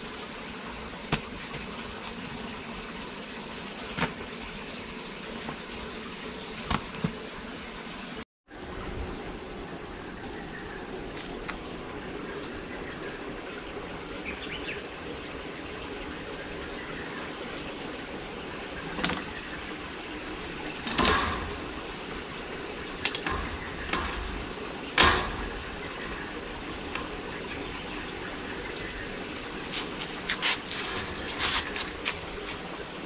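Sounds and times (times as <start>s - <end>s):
knocks and bumps on pipe: 20.8s - 22.0s, 23.0s - 27.2s.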